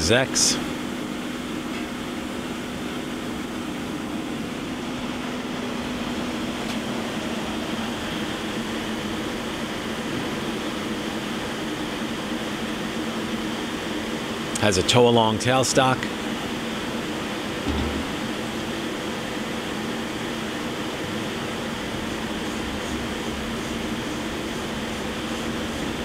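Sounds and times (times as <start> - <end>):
machine tool humming: 17.4 - 19.5.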